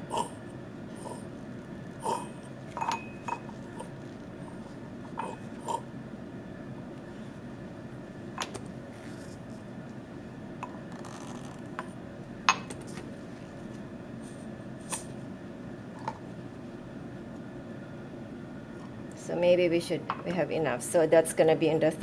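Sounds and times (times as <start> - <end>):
low room hum: 0.0 - 22.0
glassware clicking and clinking: 2.8 - 3.5.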